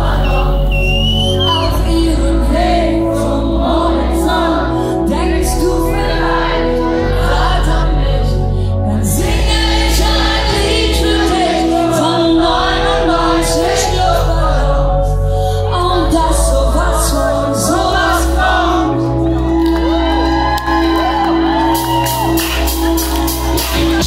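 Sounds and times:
woman singing into a microphone: 0:01.3 - 0:19.0
live pop-rock band playing: 0:20.8 - 0:24.0.

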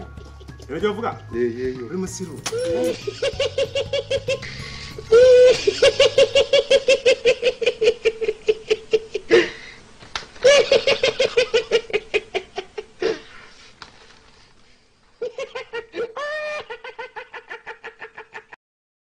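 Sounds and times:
man laughing rapidly: 0:02.6 - 0:09.3, 0:15.2 - 0:18.6.

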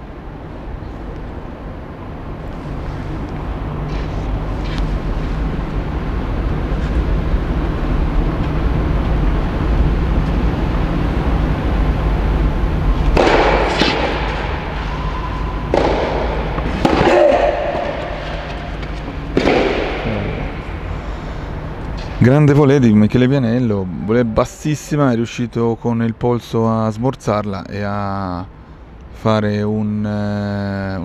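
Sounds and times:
steady low hum: 0:00.0 - 0:31.0
tennis racket hitting ball: 0:12.9 - 0:21.0.

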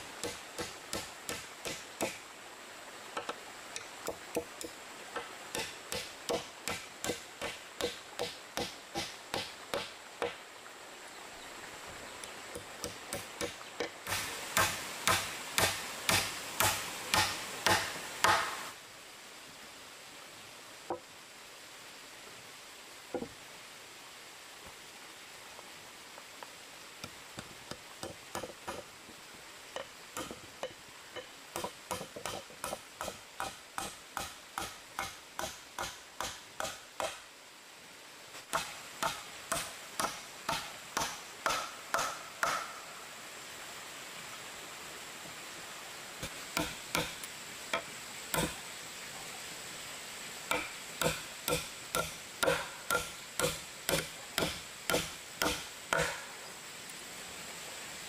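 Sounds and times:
chopping strikes: 0:03.8 - 0:10.4, 0:12.6 - 0:18.6, 0:31.6 - 0:37.2, 0:38.5 - 0:42.7, 0:46.2 - 0:47.2, 0:47.8 - 0:48.6, 0:50.5 - 0:56.3.

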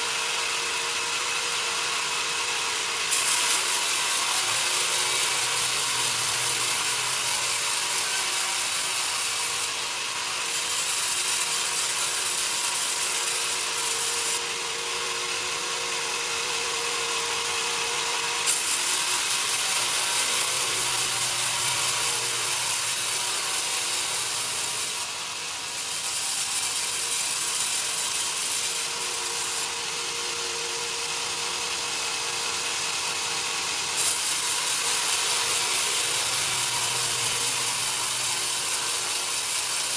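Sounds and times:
band saw blade hissing in wood: 0:00.0 - 0:39.9.

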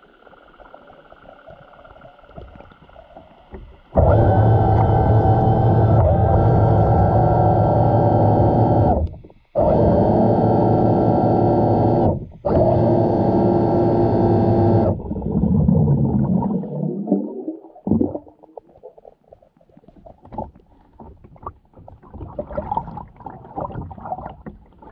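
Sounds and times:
rough uneven water noise: 0:00.0 - 0:09.6, 0:14.8 - 0:24.9
low mechanical hum underwater: 0:00.0 - 0:24.9.

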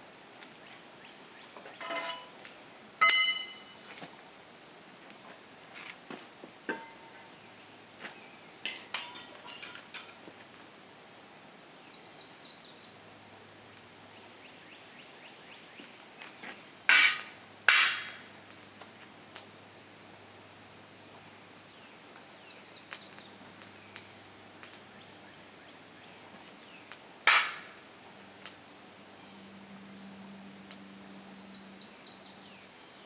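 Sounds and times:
metal tool clanking on crucible: 0:01.8 - 0:02.4, 0:03.0 - 0:03.8, 0:06.7 - 0:07.2, 0:08.7 - 0:10.1.

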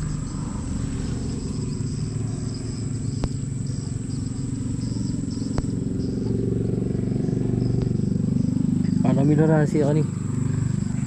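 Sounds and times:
outboard motor running: 0:00.0 - 0:11.0.

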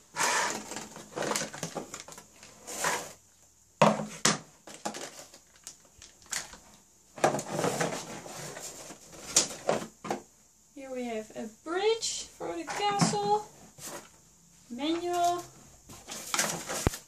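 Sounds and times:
plastic bags crinkling: 0:04.6 - 0:09.9
cardboard box rustling: 0:15.0 - 0:17.0.

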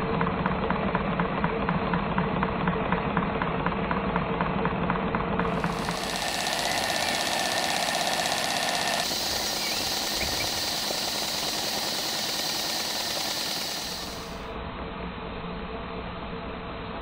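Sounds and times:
model steam engine running: 0:05.4 - 0:14.5.

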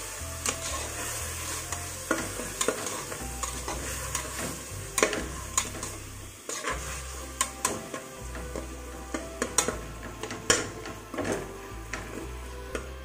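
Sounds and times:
frying sizzle: 0:00.0 - 0:13.0
metal spatula scraping a pot: 0:00.4 - 0:13.0.

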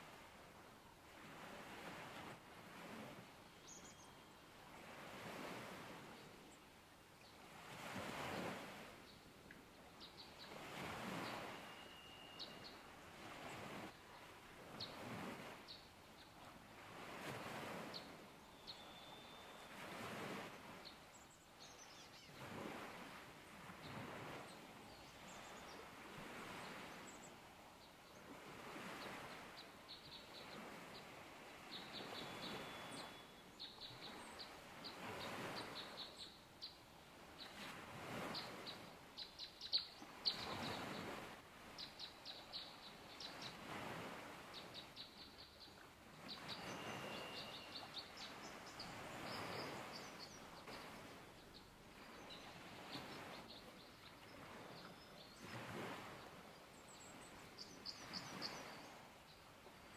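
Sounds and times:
songbird trilling: 0:11.4 - 0:12.7, 0:46.5 - 0:47.9.

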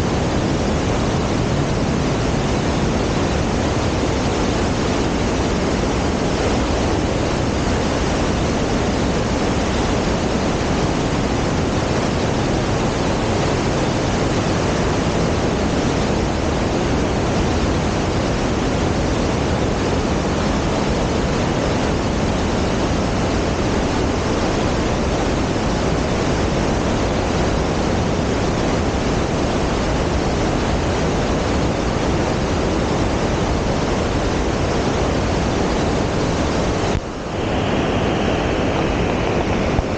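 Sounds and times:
creek rushing over boulders: 0:00.0 - 0:39.9.

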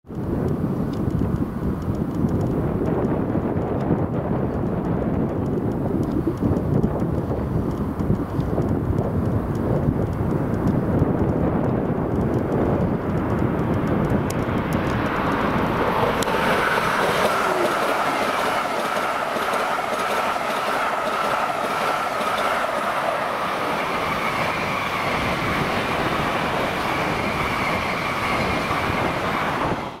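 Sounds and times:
high-speed train passing: 0:00.1 - 0:30.0
rushing of wheels and air: 0:00.2 - 0:30.0
wheels clicking over rails: 0:00.2 - 0:30.0
low rumble: 0:09.9 - 0:18.2
high whining tones: 0:14.2 - 0:30.0.

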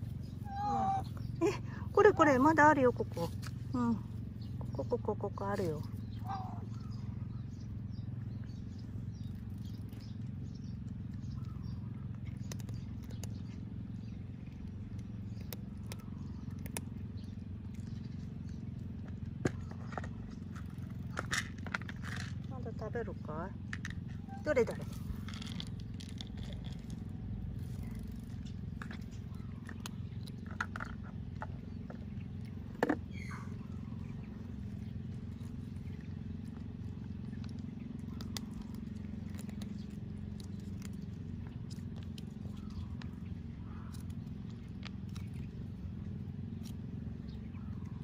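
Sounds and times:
faint bird chirps: 0:00.0 - 0:14.4, 0:33.1 - 0:36.4
steady low hum: 0:00.0 - 0:48.0
cat crunching dry kibble: 0:07.8 - 0:22.5, 0:23.6 - 0:48.0.

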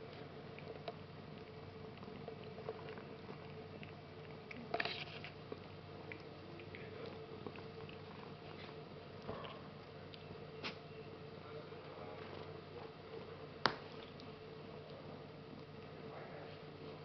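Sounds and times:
cat licking fur: 0:00.1 - 0:04.6, 0:05.4 - 0:10.8.

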